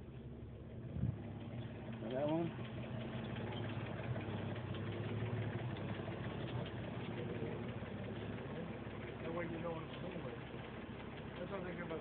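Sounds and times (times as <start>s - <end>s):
crane engine humming: 0.0s - 12.0s.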